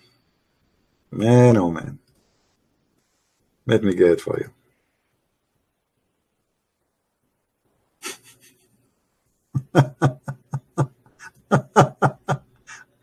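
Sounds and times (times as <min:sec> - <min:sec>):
man laughing hard: 0:08.0 - 0:08.6, 0:09.6 - 0:12.8.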